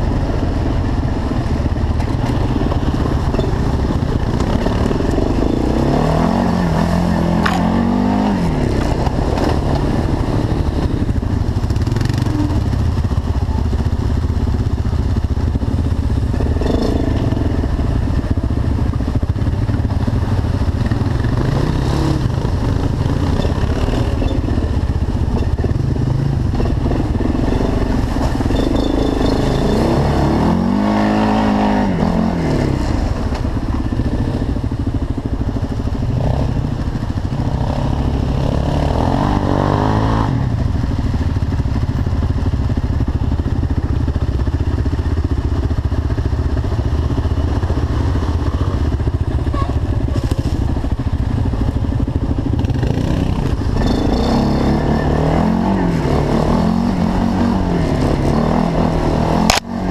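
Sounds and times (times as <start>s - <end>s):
quad engine revving: 0.0s - 13.9s, 16.2s - 18.6s, 20.1s - 34.4s, 37.4s - 40.8s, 52.3s - 59.9s.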